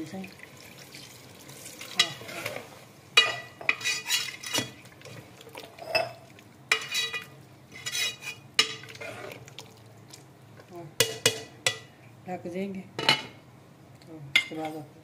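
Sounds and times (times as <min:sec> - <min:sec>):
metal ladle scraping a pot: 0:03.2 - 0:04.8, 0:05.8 - 0:09.4.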